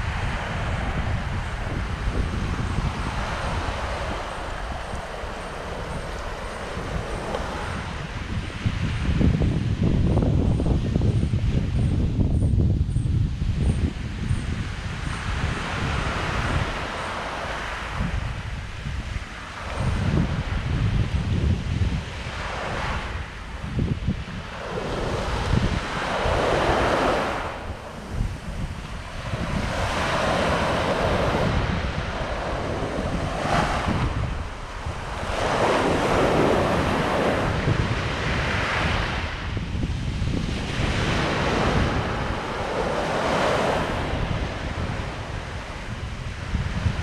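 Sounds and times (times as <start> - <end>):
small waves washing onto beach: 0.0 - 11.7, 13.3 - 47.0
wind buffeting microphone: 0.0 - 47.0.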